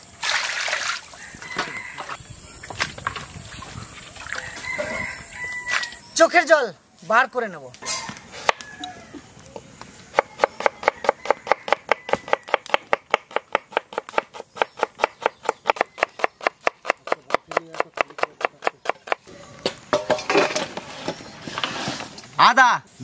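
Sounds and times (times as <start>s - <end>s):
knife chopping on wooden board: 10.2s - 19.2s.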